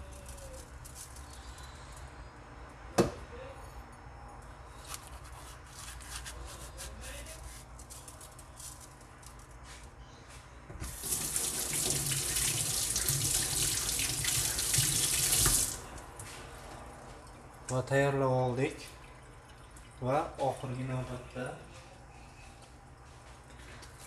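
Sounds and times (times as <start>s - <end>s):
tap water running: 10.7s - 16.1s.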